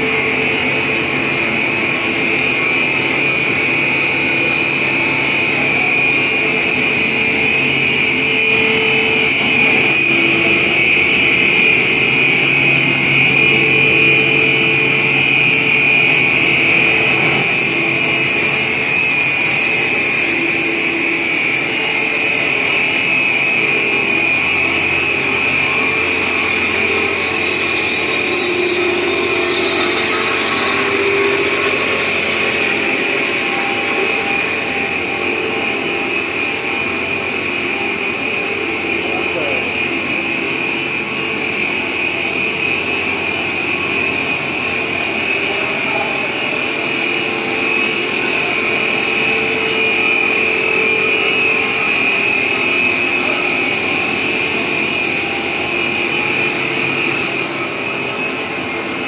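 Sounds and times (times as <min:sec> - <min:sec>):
high whine: 0:00.0 - 0:59.0
machinery drone: 0:00.0 - 0:59.0
low hum: 0:23.8 - 0:39.2.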